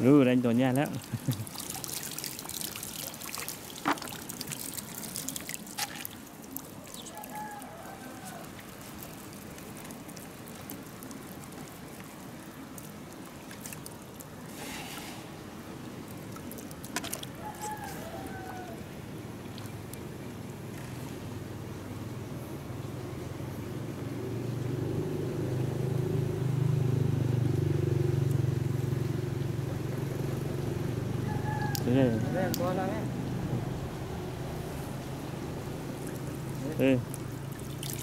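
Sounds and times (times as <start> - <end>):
water trickling and dripping: 0.0 - 38.0
small splashes: 0.6 - 20.9, 34.9 - 38.0.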